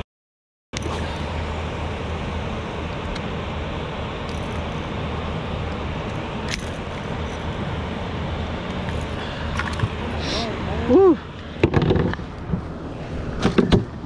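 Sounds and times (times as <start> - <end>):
low hum with rushing hiss: 0.8 - 14.0.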